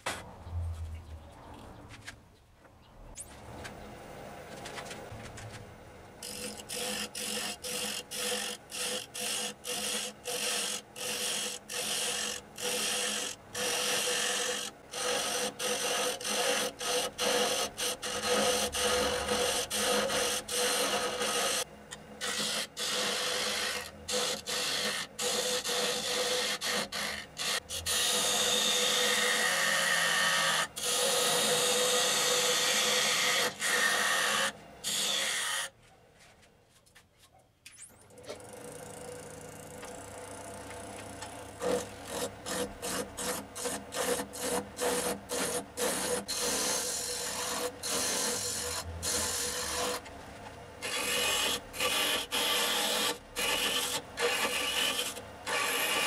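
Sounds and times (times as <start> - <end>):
turning tool cutting wood: 6.2 - 35.7, 38.2 - 50.1, 50.8 - 56.0
lathe humming: 38.3 - 56.0.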